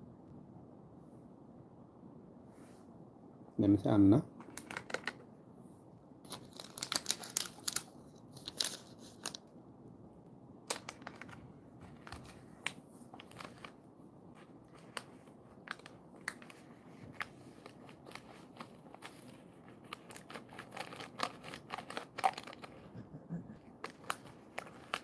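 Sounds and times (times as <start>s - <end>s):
plastic wrapper crinkling: 4.4s - 5.2s, 6.2s - 9.5s, 10.6s - 13.8s, 14.4s - 22.9s, 23.7s - 25.0s.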